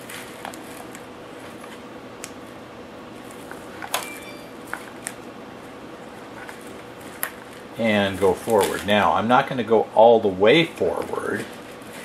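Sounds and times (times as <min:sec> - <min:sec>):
plastic wrap rustling: 0:00.0 - 0:02.6, 0:03.2 - 0:03.9, 0:04.5 - 0:09.3, 0:10.6 - 0:12.0.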